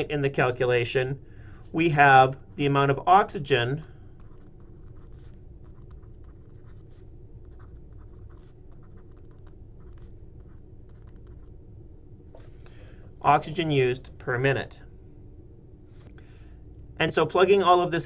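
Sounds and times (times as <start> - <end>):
low background hum: 0.0 - 18.0
stylus scratching: 4.1 - 11.6.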